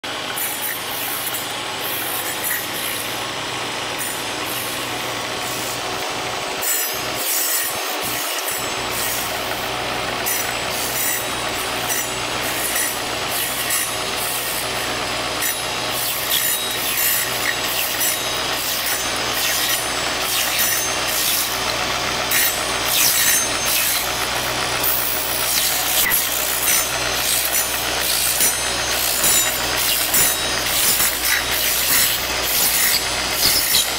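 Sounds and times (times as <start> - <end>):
electric motor hum: 0.0 - 33.9
circular blade slicing cocoons: 15.4 - 21.7.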